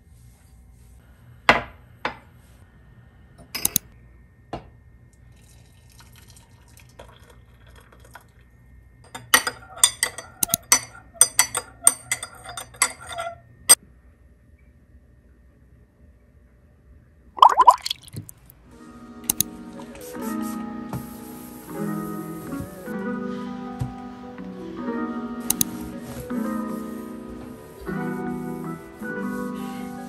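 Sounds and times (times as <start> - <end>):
spoon clinking against glass: 9.1 - 13.4.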